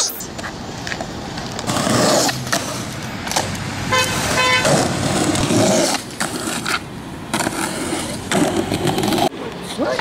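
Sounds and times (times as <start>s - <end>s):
skateboard wheels rolling on concrete: 0.0s - 10.0s
car horn honking: 3.9s - 4.8s.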